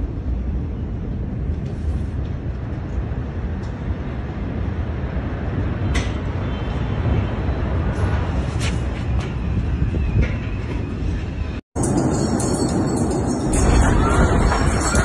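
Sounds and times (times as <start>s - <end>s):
high rattles and clinks: 11.8s - 15.0s.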